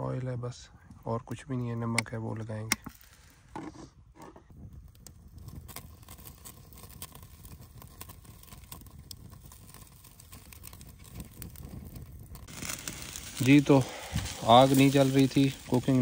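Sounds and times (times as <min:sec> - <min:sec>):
wood fire crackling and popping: 0:00.0 - 0:16.0.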